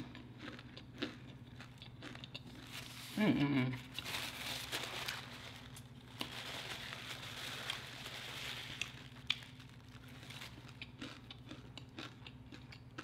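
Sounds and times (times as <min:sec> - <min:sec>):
paper napkin crinkling: 0:03.9 - 0:10.7.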